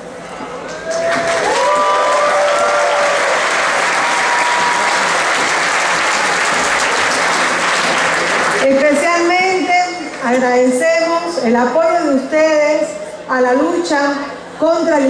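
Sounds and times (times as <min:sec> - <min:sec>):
crowd applauding: 0:00.6 - 0:09.0
voices cheering: 0:00.8 - 0:07.4.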